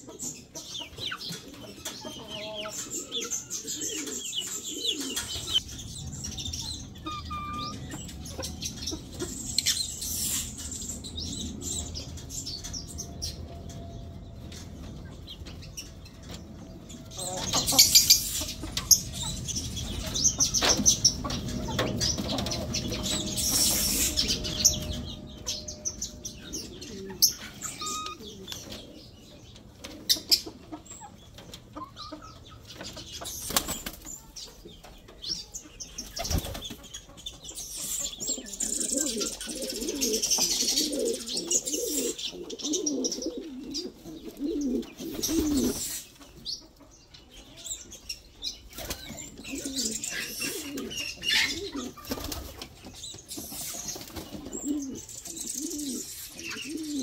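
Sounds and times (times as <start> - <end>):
pigeons cooing: 0.0 - 13.9, 14.8 - 33.9, 37.4 - 46.3, 48.8 - 57.0
wings flapping: 33.3 - 34.1, 36.0 - 36.8, 52.0 - 52.8.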